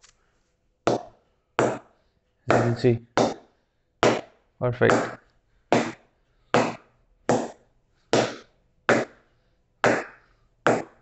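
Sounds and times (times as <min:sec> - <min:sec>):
ball knocking on cricket bat: 0:02.5 - 0:03.4, 0:10.7 - 0:11.0.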